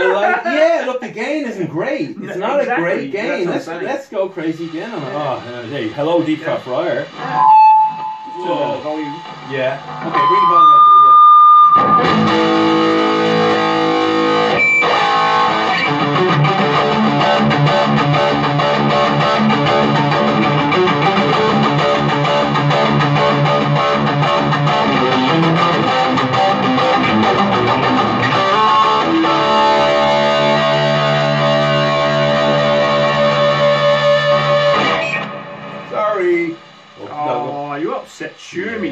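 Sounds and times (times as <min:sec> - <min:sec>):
electric guitar chords and riffs: 0:07.0 - 0:37.5.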